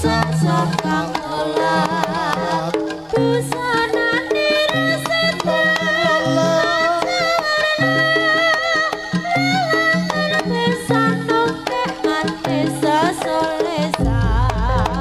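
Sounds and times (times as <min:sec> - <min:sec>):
drum strokes: 0:00.0 - 0:15.0
wavering melody line: 0:00.0 - 0:15.0
low held bass notes: 0:14.0 - 0:15.0.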